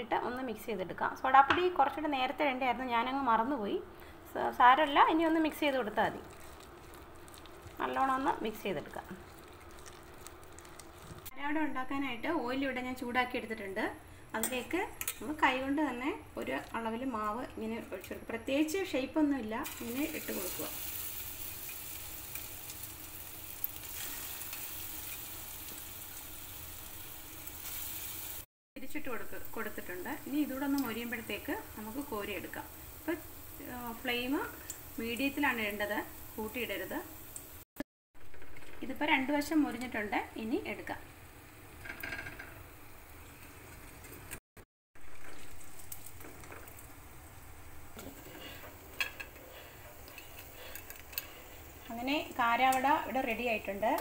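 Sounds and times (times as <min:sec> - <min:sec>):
batter sizzling in hot oil: 0:05.0 - 0:11.3, 0:19.6 - 0:37.7, 0:45.0 - 0:54.0.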